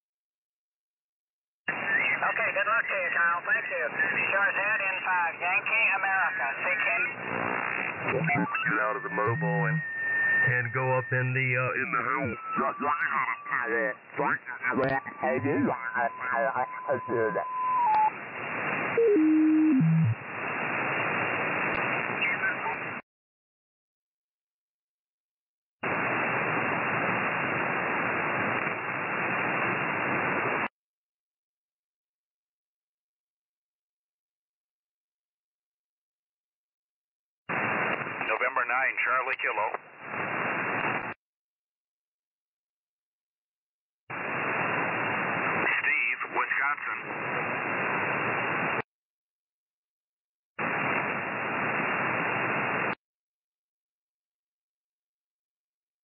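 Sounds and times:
radio band noise hiss: 1.7s - 23.0s, 25.8s - 30.7s, 37.5s - 41.2s, 44.1s - 48.8s, 50.6s - 53.0s.

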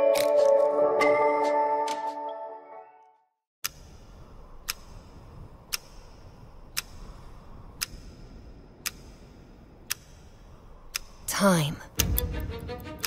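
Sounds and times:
clock ticking: 3.6s - 13.0s.

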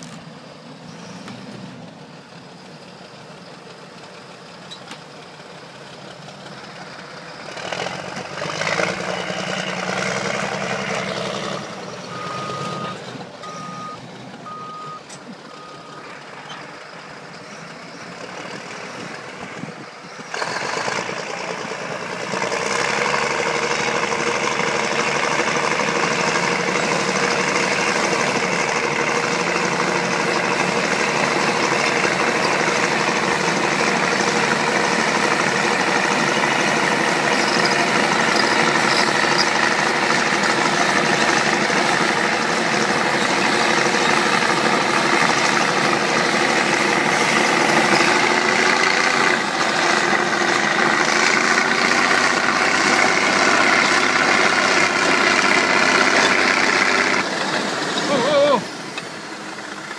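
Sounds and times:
bulldozer diesel engines under load: 0.0s - 59.9s
backup alarm beeping: 12.1s - 16.0s.

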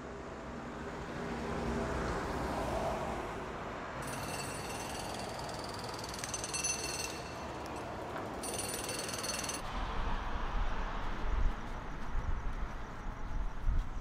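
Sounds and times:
traffic rumble: 0.0s - 14.0s.

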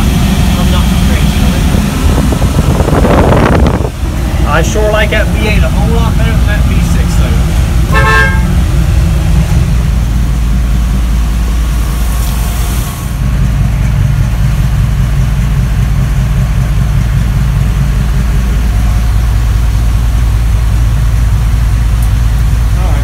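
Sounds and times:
engine idling: 0.0s - 23.0s.

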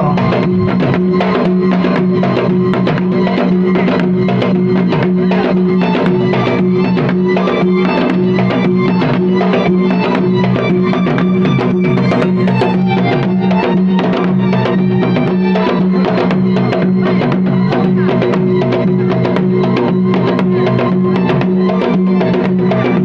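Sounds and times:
steady held note: 0.0s - 4.2s
fast dense drumming: 0.0s - 23.0s.

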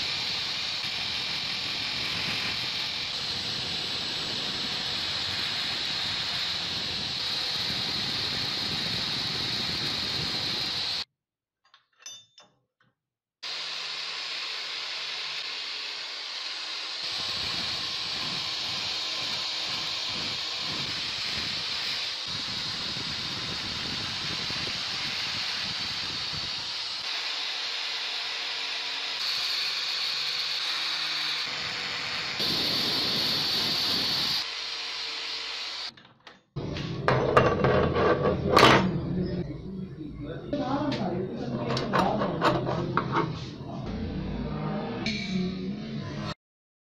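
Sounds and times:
angle grinder buffing metal: 0.0s - 11.0s, 13.5s - 35.9s.

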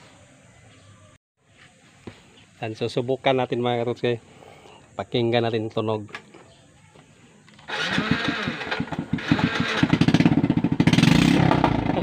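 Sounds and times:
motorcycle engine starting and running: 7.5s - 12.0s.

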